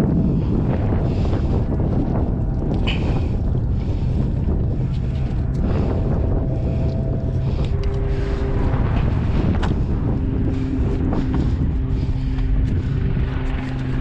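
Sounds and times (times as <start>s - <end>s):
steady mechanical hum: 0.0s - 14.0s
wind rumbling on microphone: 0.0s - 14.0s.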